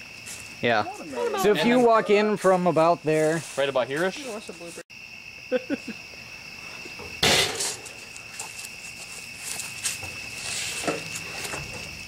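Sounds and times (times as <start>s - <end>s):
crickets chirping: 0.0s - 12.0s
rustling and shuffling steps: 0.1s - 4.8s, 7.6s - 12.0s
scuffle of bodies and clothing: 0.1s - 4.8s, 7.8s - 12.0s.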